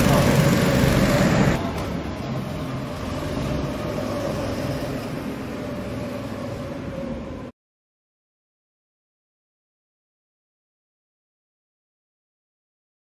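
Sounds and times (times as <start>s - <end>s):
go-kart engines running: 0.0s - 7.5s
indoor hall noise: 0.0s - 7.5s.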